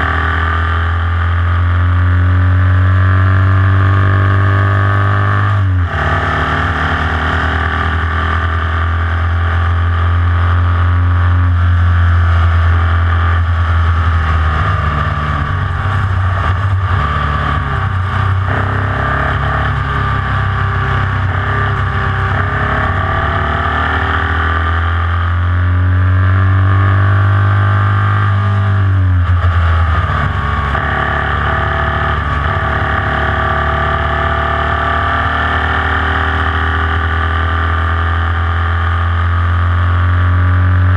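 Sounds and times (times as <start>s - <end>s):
race car engine running hard: 0.0s - 40.9s.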